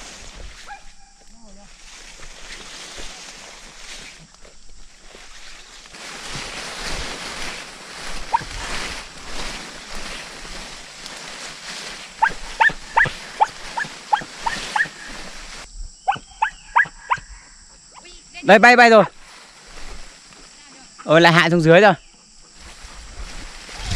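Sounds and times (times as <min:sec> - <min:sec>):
rustling through field: 0:00.0 - 0:17.4, 0:18.0 - 0:23.9
dogs yelping: 0:12.2 - 0:15.1, 0:16.1 - 0:17.3.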